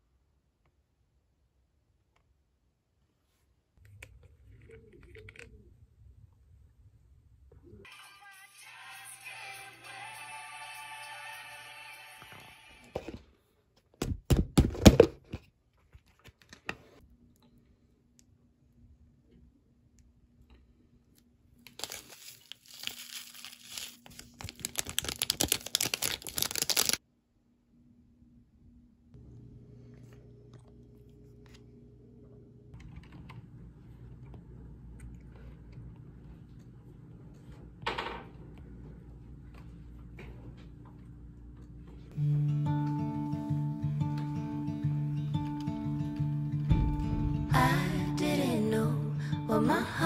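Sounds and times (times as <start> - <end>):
low room hum: 15.2 - 25.6, 27.0 - 50.0.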